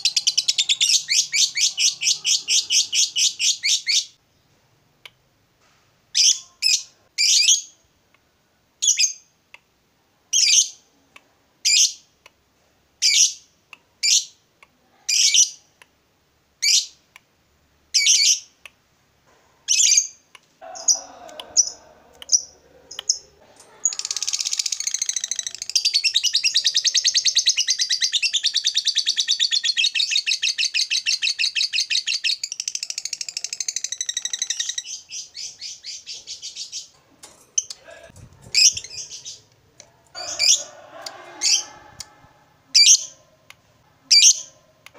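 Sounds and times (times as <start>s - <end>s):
lovebird calls and chattering trill: 23.8s - 37.0s.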